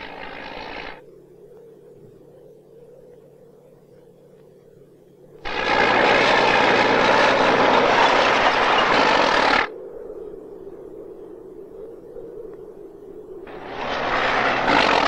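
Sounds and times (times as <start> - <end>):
faint steady hum: 0.0 - 15.0
heavy machine engine noise: 5.4 - 9.7, 13.5 - 15.0.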